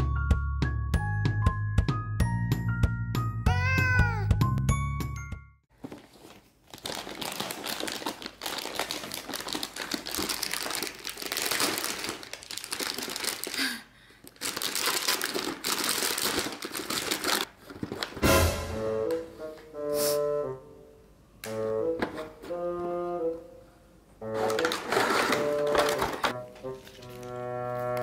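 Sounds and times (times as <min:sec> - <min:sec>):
plastic wrapping crinkling: 0:05.7 - 0:18.2, 0:24.3 - 0:28.0.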